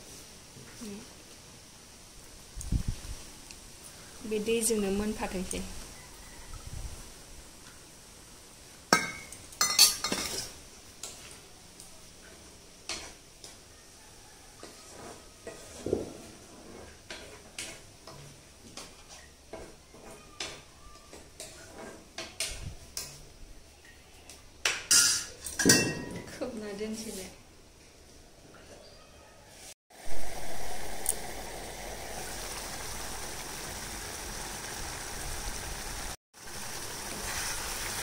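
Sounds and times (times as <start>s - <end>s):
metal kitchenware clanking: 9.0s - 10.6s, 24.7s - 26.4s
metal spatula stirring and scraping: 14.6s - 23.3s.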